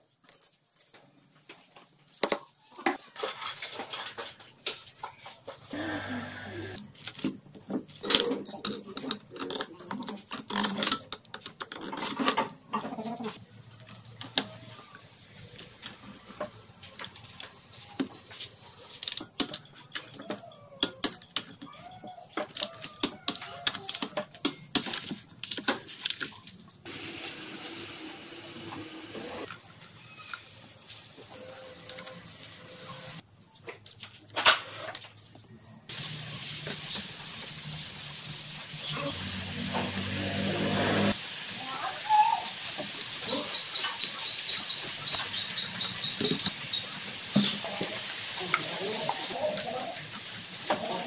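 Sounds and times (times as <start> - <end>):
metal tools clinking: 0.2 - 1.1, 6.8 - 12.8.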